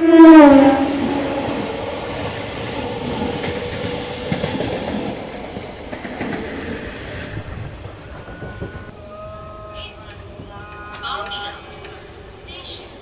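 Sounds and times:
electric train passing: 0.0 - 13.0
wheels clattering over rails: 1.0 - 8.9.

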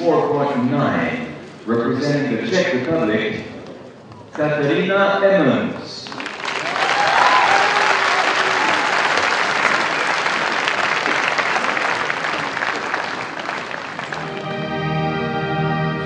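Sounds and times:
audience applauding: 6.0 - 14.8.

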